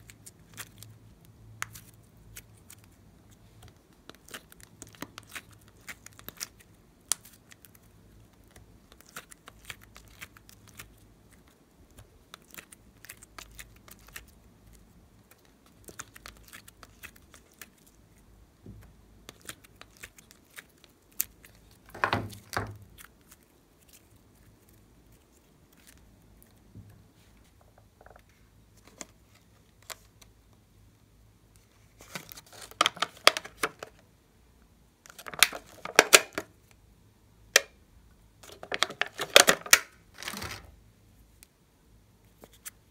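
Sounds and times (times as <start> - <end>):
plastic packaging crinkling: 32.0 - 34.0, 38.4 - 40.7.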